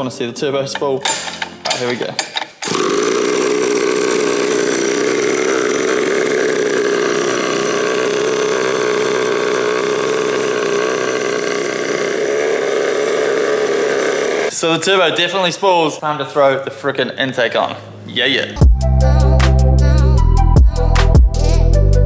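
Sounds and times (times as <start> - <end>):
turbocharger whirring: 1.1 - 14.7.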